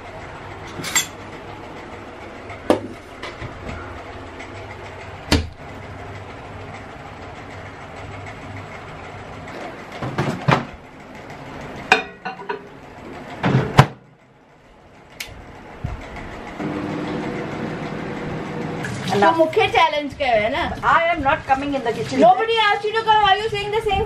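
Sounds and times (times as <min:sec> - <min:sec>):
steady low hum: 0:00.0 - 0:24.0
dishes clattering on counter: 0:11.9 - 0:12.7.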